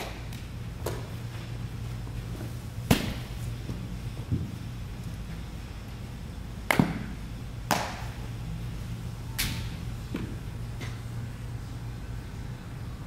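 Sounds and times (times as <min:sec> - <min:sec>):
steady low hum: 0:00.0 - 0:13.0
baseball smacks: 0:02.8 - 0:03.4, 0:06.6 - 0:08.2.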